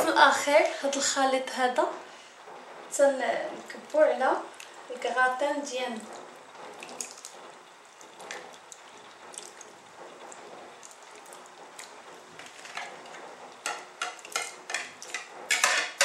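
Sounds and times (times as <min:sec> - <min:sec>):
thick mixture pouring and slopping: 0:05.9 - 0:15.6.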